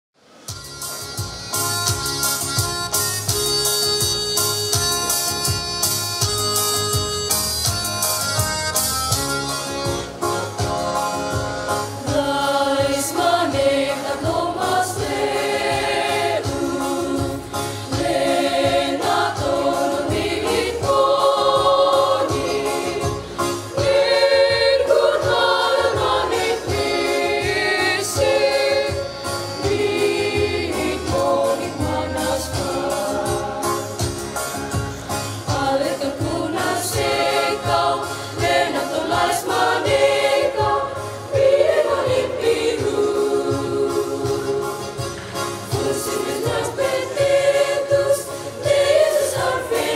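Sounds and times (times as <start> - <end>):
choir singing a hymn: 11.1 - 49.9.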